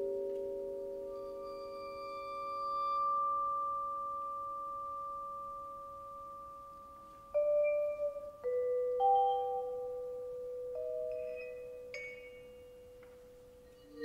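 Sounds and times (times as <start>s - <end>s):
bowed vibraphone tone: 0.0s - 14.0s
vibraphone mallet strike: 7.3s - 13.2s.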